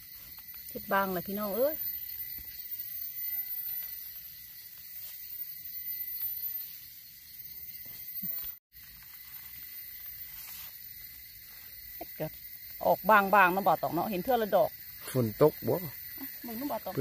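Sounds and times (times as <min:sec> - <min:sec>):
rustling and clicks of dry leaves: 0:00.0 - 0:00.9, 0:07.7 - 0:12.8
high-pitched hiss of insects: 0:00.0 - 0:17.0.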